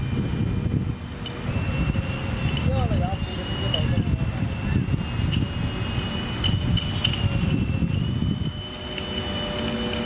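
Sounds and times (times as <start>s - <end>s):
electric motor whine: 0.0s - 10.0s
low rumbling noise: 0.0s - 10.0s.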